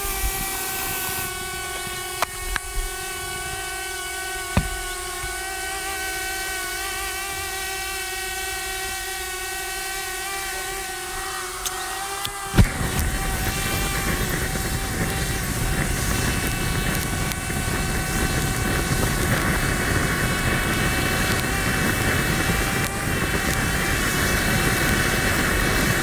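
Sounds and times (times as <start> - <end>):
burner flame roaring: 0.0 - 26.0
motor whine: 0.0 - 26.0
gas burner lighting thump: 4.5 - 5.4.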